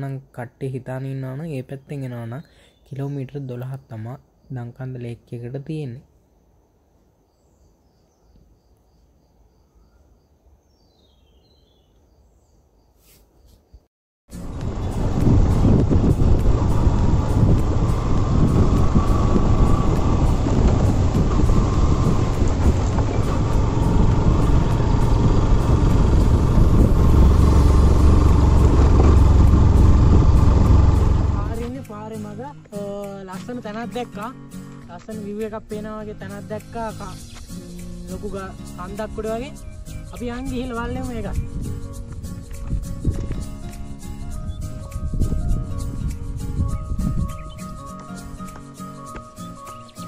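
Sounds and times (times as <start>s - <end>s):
descending run of high notes: 14.3s - 31.7s
low rumble: 14.3s - 31.8s.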